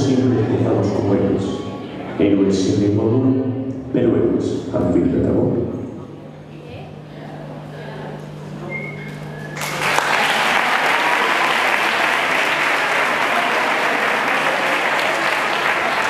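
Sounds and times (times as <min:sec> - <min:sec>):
audience applause: 0:09.6 - 0:16.0.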